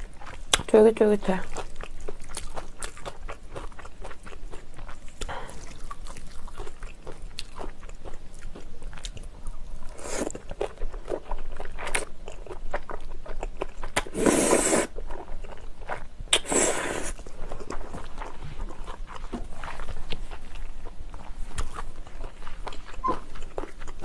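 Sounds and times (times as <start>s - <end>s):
wet chewing: 1.4s - 24.0s
noodle slurping: 14.0s - 15.0s, 16.3s - 17.2s.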